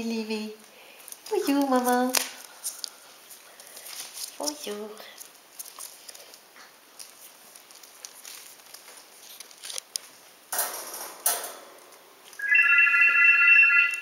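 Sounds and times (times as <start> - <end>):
puppies' paws pattering on paper: 0.6 - 10.3
paper crackling: 1.0 - 10.3
electronic telephone ring: 12.4 - 14.0.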